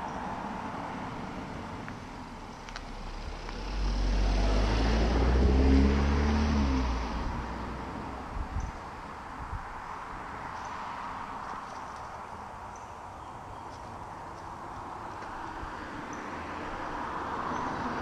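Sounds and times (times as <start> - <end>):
car driving past: 2.8 - 8.4.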